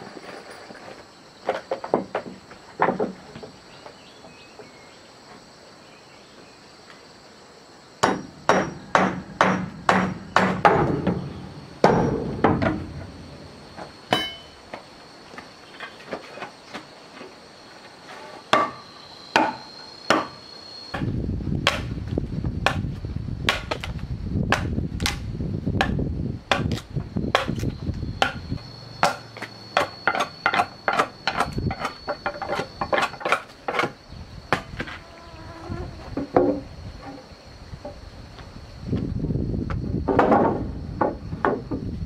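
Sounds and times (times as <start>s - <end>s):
high insect drone: 0.0s - 42.0s
hammer blows: 14.1s - 14.6s.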